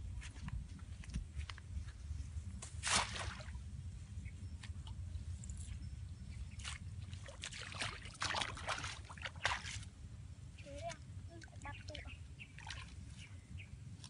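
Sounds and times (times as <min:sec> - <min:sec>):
water splashing from wading: 0:02.8 - 0:03.6, 0:07.1 - 0:09.8, 0:10.8 - 0:13.0.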